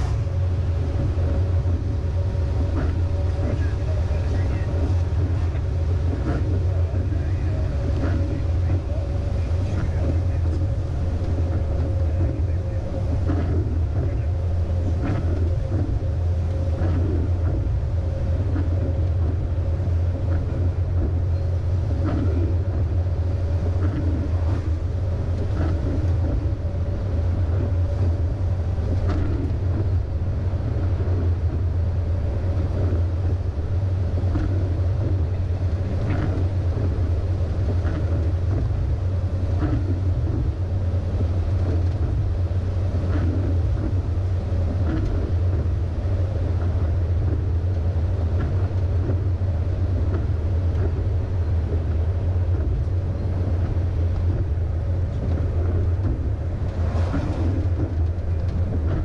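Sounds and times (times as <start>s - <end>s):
truck diesel engine cruising: 0.0s - 59.0s
tyre noise on wet road: 49.9s - 59.0s.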